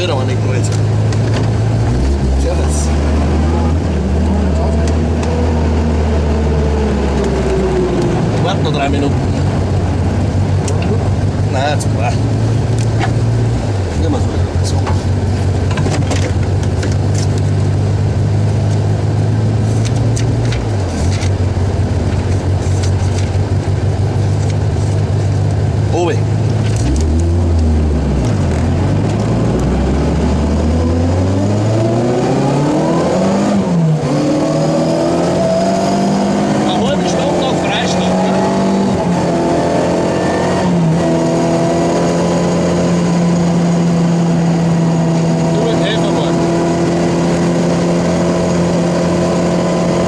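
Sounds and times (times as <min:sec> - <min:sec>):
car engine idling: 0:00.0 - 0:30.8.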